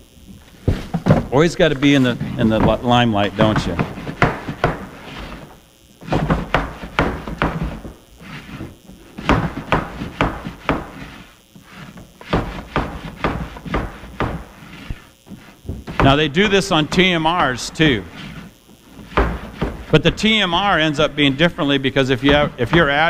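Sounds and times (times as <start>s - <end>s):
sieve trays knocking and thudding: 19.0s - 20.4s, 22.1s - 23.0s.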